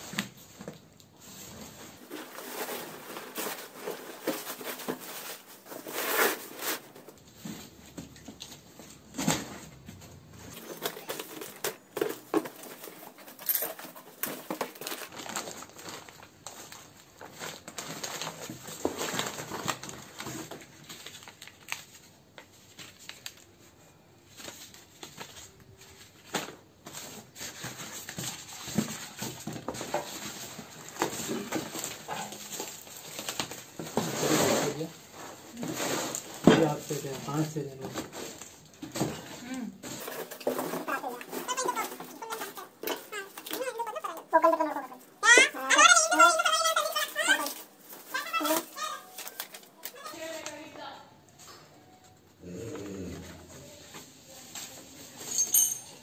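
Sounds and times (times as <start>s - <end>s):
plastic wrap crinkling: 0.0s - 9.0s, 10.5s - 52.0s
cardboard scraping: 1.2s - 7.8s, 27.2s - 38.5s.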